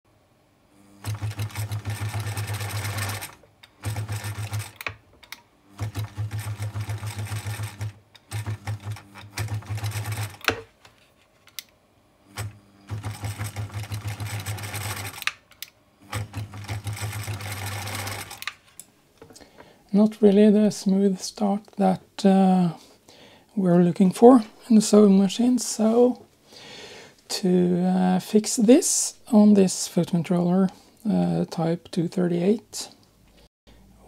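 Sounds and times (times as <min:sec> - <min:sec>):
sewing machine running in bursts: 0:01.0 - 0:04.9, 0:05.7 - 0:10.5, 0:12.4 - 0:15.3, 0:16.1 - 0:18.5.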